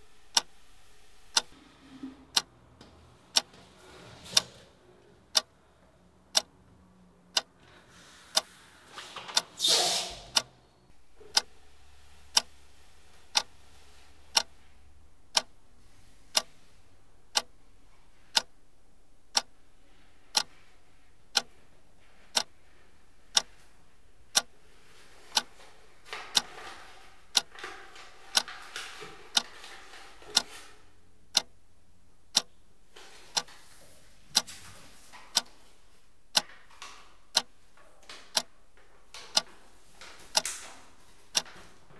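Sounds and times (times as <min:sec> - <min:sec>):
clock ticking: 0:01.3 - 0:01.5, 0:03.3 - 0:03.6, 0:05.3 - 0:05.5, 0:06.2 - 0:06.6, 0:07.2 - 0:07.6, 0:14.3 - 0:14.5, 0:15.3 - 0:15.6, 0:17.3 - 0:17.6, 0:18.3 - 0:18.5, 0:19.3 - 0:19.5, 0:20.3 - 0:20.5, 0:21.3 - 0:21.5, 0:22.3 - 0:22.5, 0:23.3 - 0:23.5, 0:24.3 - 0:24.5, 0:25.3 - 0:25.5, 0:27.3 - 0:27.6, 0:28.3 - 0:28.5, 0:31.3 - 0:31.6, 0:32.2 - 0:32.5, 0:33.3 - 0:33.5, 0:34.3 - 0:34.5, 0:35.3 - 0:35.5, 0:36.3 - 0:36.5, 0:37.3 - 0:37.6, 0:38.3 - 0:38.5, 0:39.3 - 0:39.5, 0:40.3 - 0:40.6, 0:41.3 - 0:41.5.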